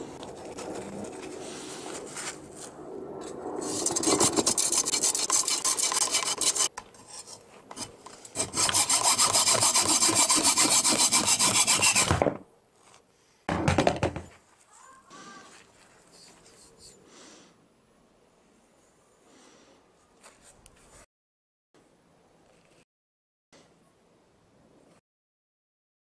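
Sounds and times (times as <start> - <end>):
hacksaw cutting aluminium: 3.6 - 12.2.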